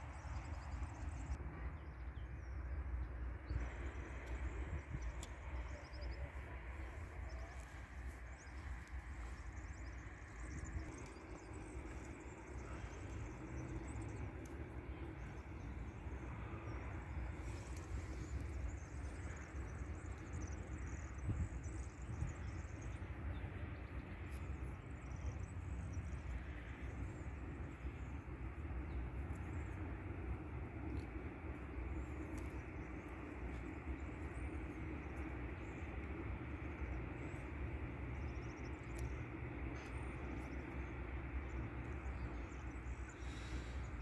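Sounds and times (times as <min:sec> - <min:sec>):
low outdoor rumble: 0:00.0 - 0:44.0.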